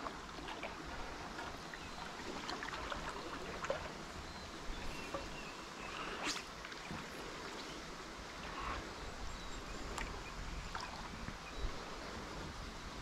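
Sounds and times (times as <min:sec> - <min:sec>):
faint water noise: 0:00.0 - 0:13.0.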